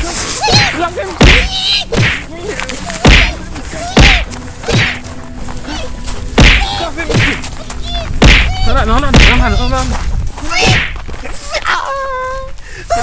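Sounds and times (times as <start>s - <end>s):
blows landing on body: 0.0s - 2.3s, 2.9s - 5.1s, 6.3s - 9.7s, 10.6s - 11.1s.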